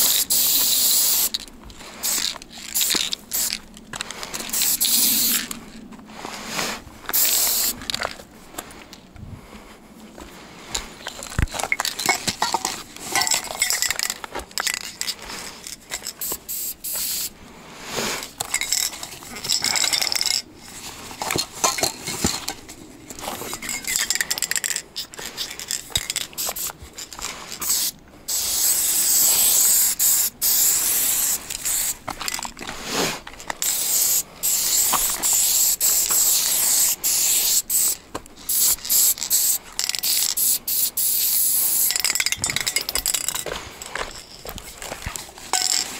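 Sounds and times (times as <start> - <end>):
spray can hissing: 0.0 - 1.4, 2.0 - 3.6, 4.4 - 5.5, 7.1 - 7.8, 16.0 - 17.3, 25.4 - 26.8, 27.6 - 32.0, 33.6 - 42.3
spray cans clinking: 7.1 - 8.2, 11.2 - 17.3, 18.4 - 20.5, 21.2 - 22.6, 23.4 - 32.6, 33.4 - 45.9.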